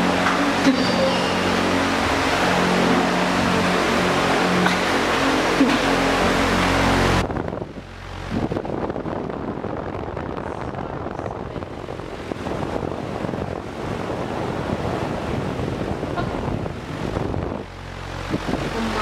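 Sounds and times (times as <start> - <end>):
wind buffeting microphone: 7.2 - 19.0.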